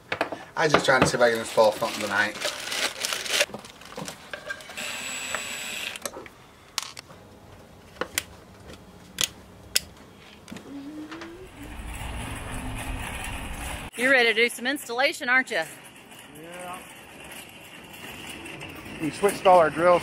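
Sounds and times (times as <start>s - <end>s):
low hum: 10.6s - 13.9s.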